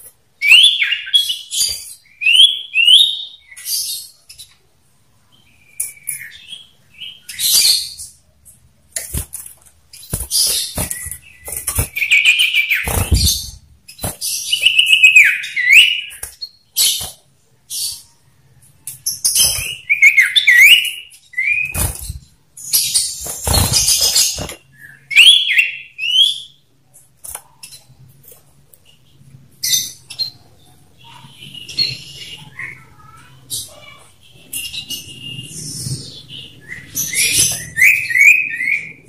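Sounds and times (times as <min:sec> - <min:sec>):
wings fluttering in cage: 0:08.9 - 0:15.0, 0:19.3 - 0:19.9, 0:21.6 - 0:22.4, 0:23.0 - 0:24.7.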